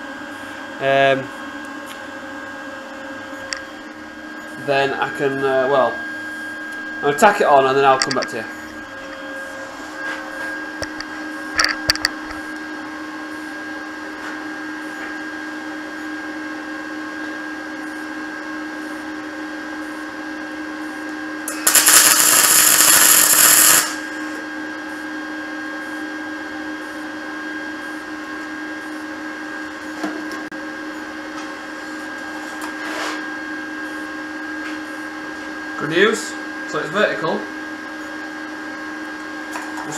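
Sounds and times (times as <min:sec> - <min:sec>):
steady hum: 0:00.0 - 0:39.9
welder crackle: 0:21.5 - 0:24.4.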